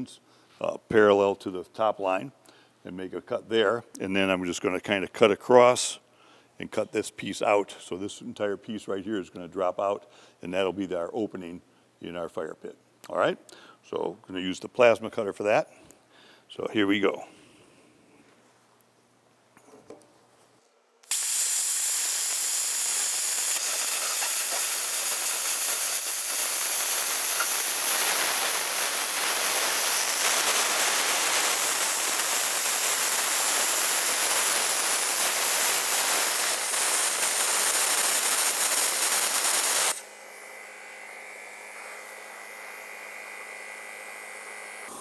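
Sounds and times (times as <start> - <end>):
plasma cutter hiss: 21.0 - 40.0.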